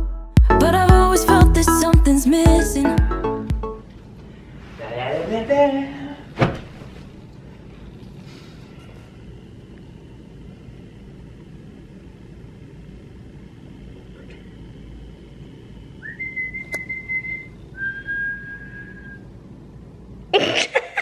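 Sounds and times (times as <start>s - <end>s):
steady low hum: 0.4s - 21.0s
long whistled notes: 16.0s - 19.3s
click: 16.6s - 16.9s.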